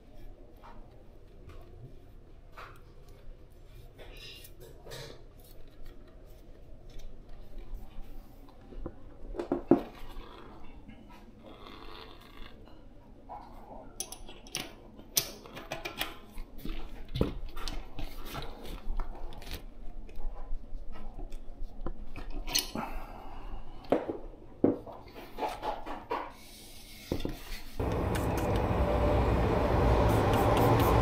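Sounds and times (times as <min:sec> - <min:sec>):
steady rushing noise: 0:27.8 - 0:31.0.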